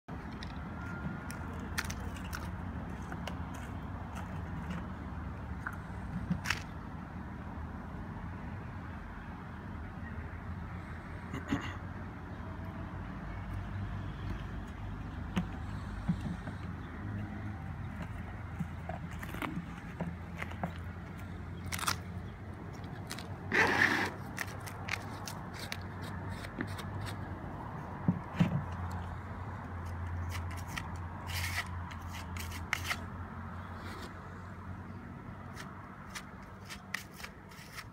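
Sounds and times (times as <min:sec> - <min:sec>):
putty knife scraping mortar: 0:30.2 - 0:33.0, 0:35.5 - 0:37.9.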